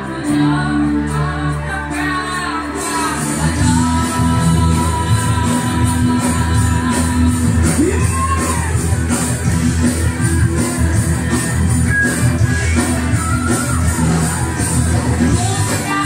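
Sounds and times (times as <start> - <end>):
person singing: 0.0 - 8.9, 12.4 - 16.0
live band playing: 0.0 - 16.0.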